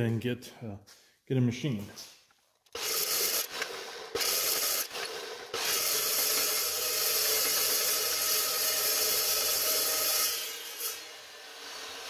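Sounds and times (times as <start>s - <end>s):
saw cutting through steel bar: 2.8s - 12.0s.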